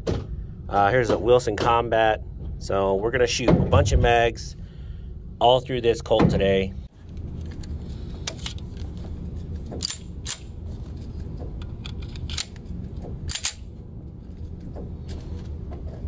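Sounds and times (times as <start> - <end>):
pistol metal clicks: 9.8 - 10.5, 11.8 - 12.6, 13.3 - 13.7.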